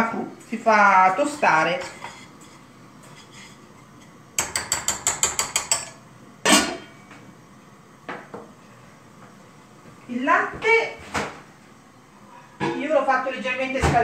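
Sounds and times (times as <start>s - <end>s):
metal cookware clank: 4.4s - 6.9s.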